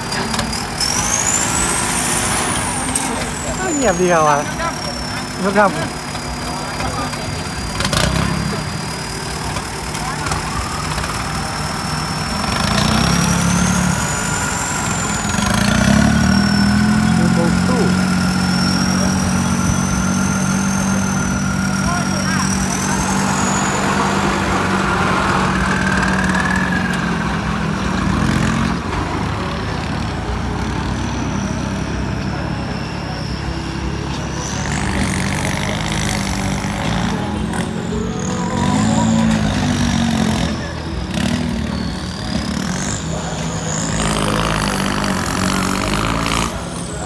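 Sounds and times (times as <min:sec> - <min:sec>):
tractor diesel engines: 0:00.0 - 0:47.0
high whistle: 0:00.2 - 0:07.8, 0:09.0 - 0:27.0, 0:31.1 - 0:47.0.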